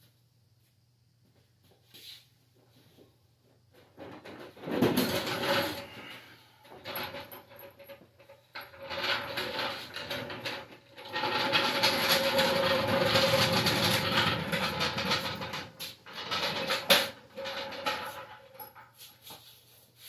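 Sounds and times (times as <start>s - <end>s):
floor jack rolling and rattling: 3.8s - 19.4s.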